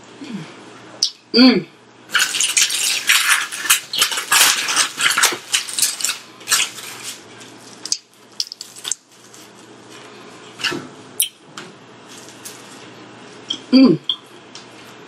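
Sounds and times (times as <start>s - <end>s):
bread tearing: 2.1s - 9.6s
paper wrapper crinkling: 2.1s - 9.7s.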